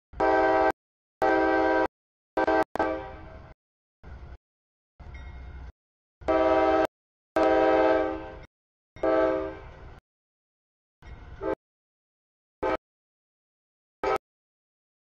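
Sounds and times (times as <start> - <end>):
locomotive air horn blasts: 0.2 - 3.5, 6.2 - 9.8, 12.6 - 12.8.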